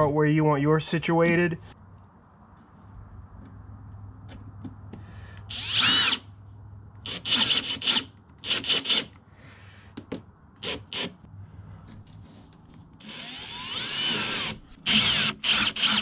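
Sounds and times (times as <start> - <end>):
cordless drill driving screws: 5.5 - 6.2, 7.1 - 9.1, 13.0 - 16.0.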